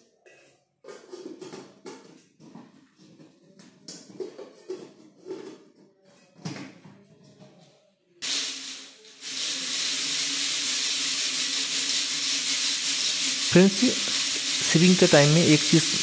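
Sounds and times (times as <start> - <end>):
grit rushing in sieve: 8.2 - 16.0.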